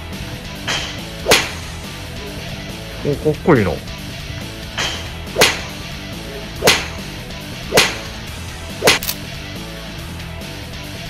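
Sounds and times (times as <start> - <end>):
faint background music: 0.0 - 11.0
whip-like cracks: 0.7 - 1.7, 4.8 - 5.8, 6.6 - 7.1, 7.7 - 9.3.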